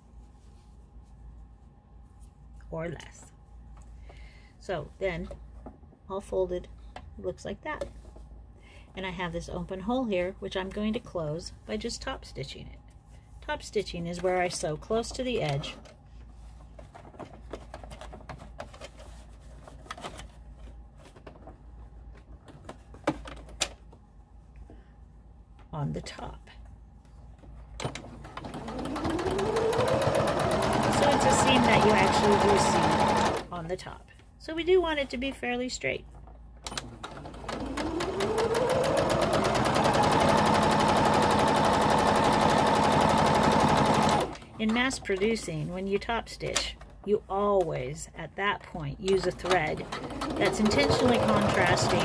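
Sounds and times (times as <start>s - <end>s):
sewing machine stitching: 27.9s - 33.5s, 36.7s - 44.4s, 49.2s - 52.0s.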